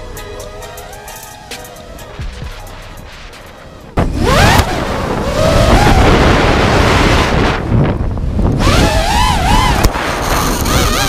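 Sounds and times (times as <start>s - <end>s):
drone motors whining: 0.0s - 7.3s, 8.5s - 11.0s
wind noise on microphone: 1.8s - 11.0s.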